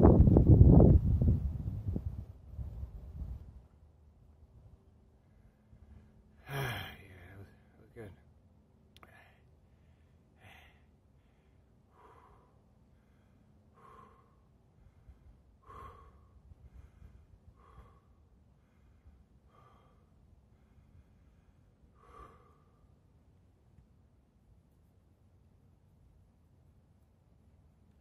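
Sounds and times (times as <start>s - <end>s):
man breathing faintly: 5.0s - 8.1s, 9.0s - 23.6s.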